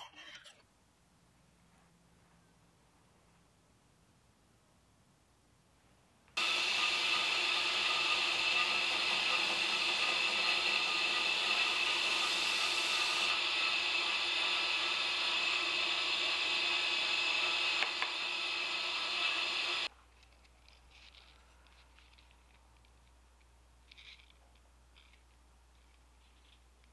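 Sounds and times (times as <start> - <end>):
belt grinder grinding steel: 6.4 - 19.9.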